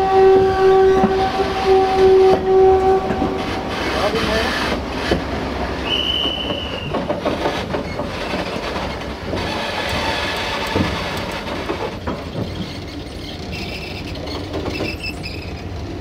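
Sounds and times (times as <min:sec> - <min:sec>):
train wheels rolling over rails: 0:00.0 - 0:16.0
high wheel squeal: 0:05.8 - 0:07.1, 0:12.4 - 0:15.8.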